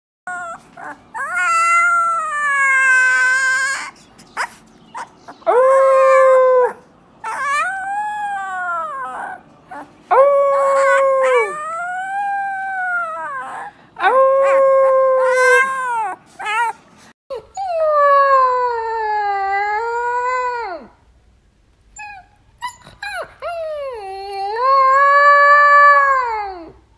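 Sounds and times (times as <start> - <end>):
puppies howling: 0.3 - 16.8.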